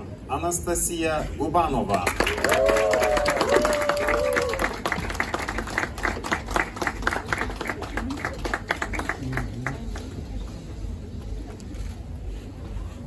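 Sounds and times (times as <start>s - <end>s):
people clapping: 1.9s - 10.6s.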